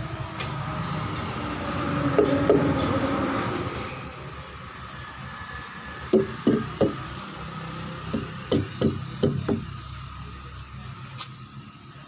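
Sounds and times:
hook knocking on truck tyres: 6.1s - 7.0s, 8.1s - 9.7s.

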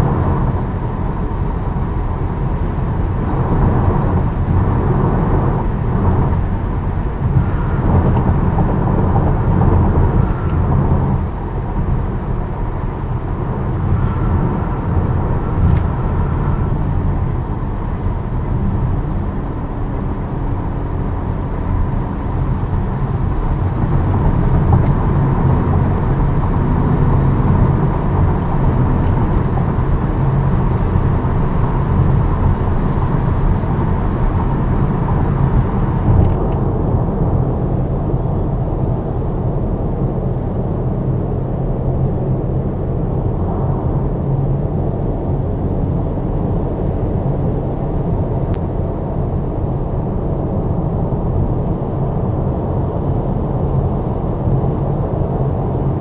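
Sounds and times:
tyre and wind rumble: 0.0s - 56.0s.

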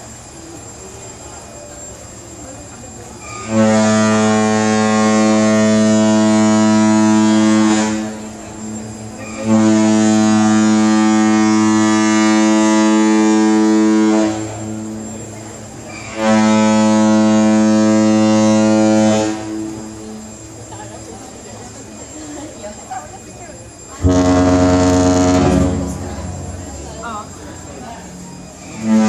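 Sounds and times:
ship's horn blasts: 3.2s - 20.5s, 24.0s - 29.0s.

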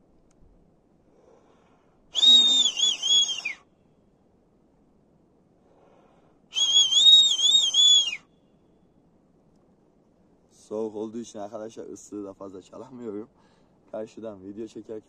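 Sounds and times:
man's finger whistle: 2.1s - 3.6s, 6.5s - 8.3s.

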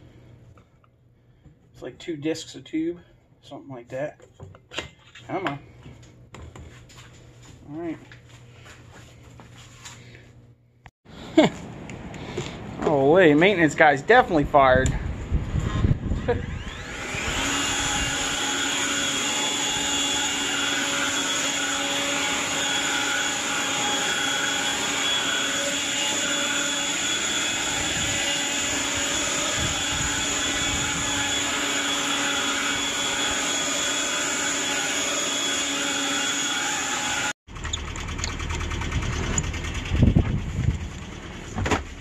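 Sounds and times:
leaf blower whining: 15.5s - 42.0s.

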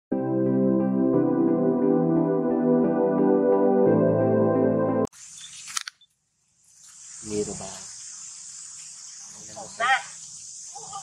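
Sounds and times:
intro music with sustained chords: 0.1s - 5.1s.

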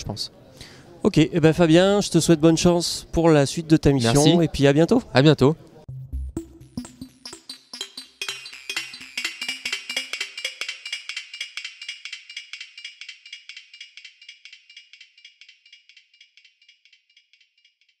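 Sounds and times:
fast clicking percussion music: 6.2s - 18.0s.

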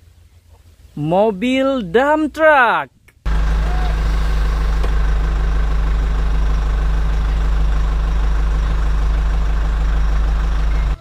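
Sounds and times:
dump truck engine idling: 3.3s - 11.0s.

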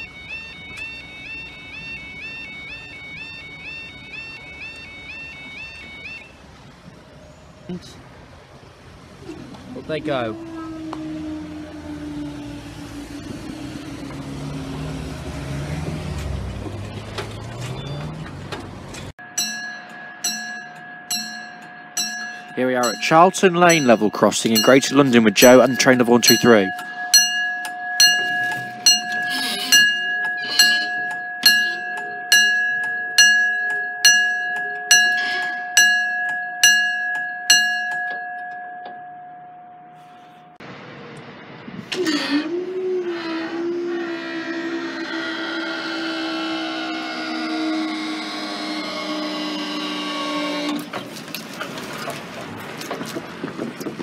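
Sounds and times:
level crossing alarm ringing: 0.0s - 6.7s, 19.2s - 40.6s, 42.0s - 50.9s
road vehicle engines: 0.0s - 54.0s
barrier mechanism hum: 8.6s - 35.2s.

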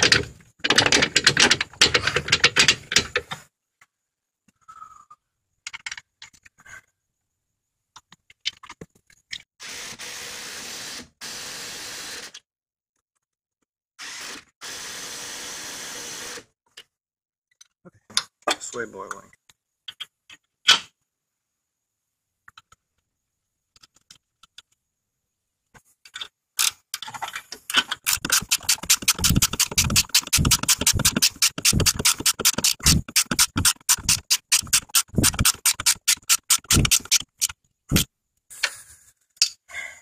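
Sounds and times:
ratchet wrench clicking: 28.0s - 38.1s.

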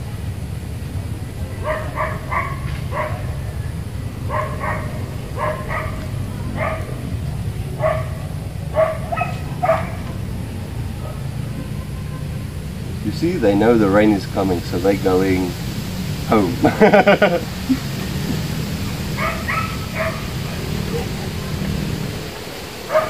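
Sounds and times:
steady low rumble: 0.0s - 23.0s
dog barking: 1.5s - 3.6s, 4.2s - 12.3s, 19.1s - 21.4s.

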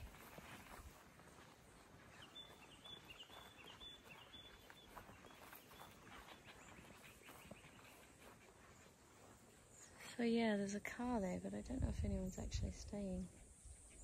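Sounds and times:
bird chirping: 1.8s - 8.9s.

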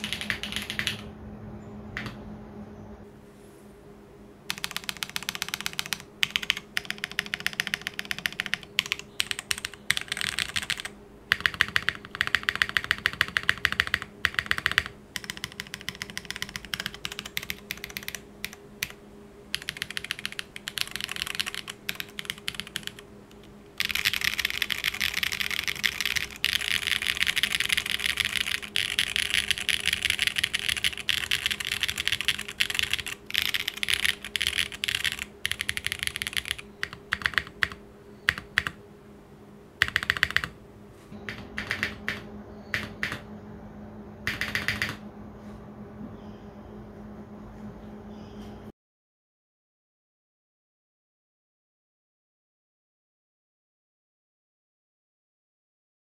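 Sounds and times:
mechanical keyboard clacking: 0.0s - 1.1s, 4.5s - 38.8s, 39.8s - 40.6s, 41.3s - 43.2s, 44.2s - 45.0s.

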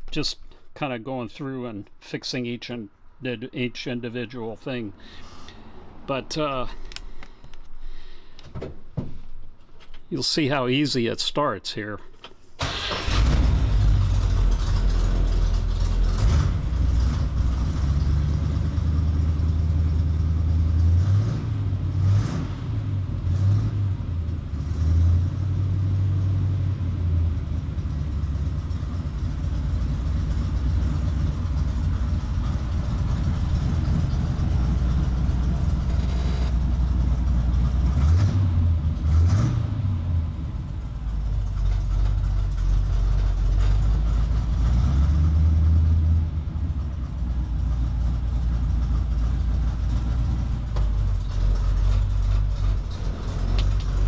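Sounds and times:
car engine starting: 12.6s - 54.0s
loud engine running and revving: 13.1s - 54.0s.

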